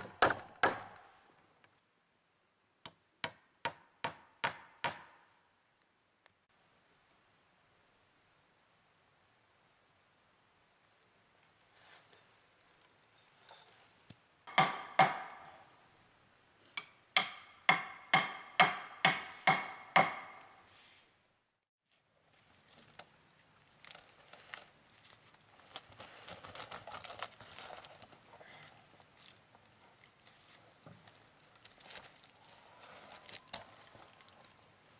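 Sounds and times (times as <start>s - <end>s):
rustling: 11.4s - 14.2s, 21.8s - 34.9s.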